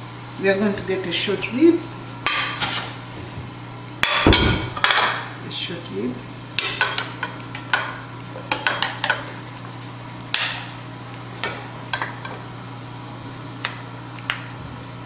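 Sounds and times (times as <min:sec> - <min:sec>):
steady low hum: 0:00.0 - 0:06.8.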